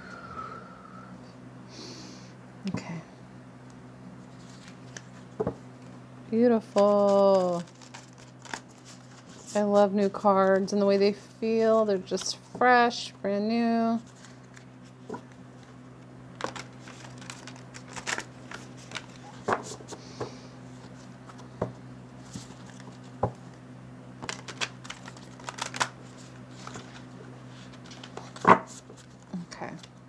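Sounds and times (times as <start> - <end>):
steady low hum: 0.0 - 30.0
cards being shuffled: 4.3 - 5.9, 6.6 - 12.7, 14.0 - 15.8, 16.4 - 21.6, 22.2 - 23.6, 24.2 - 29.9.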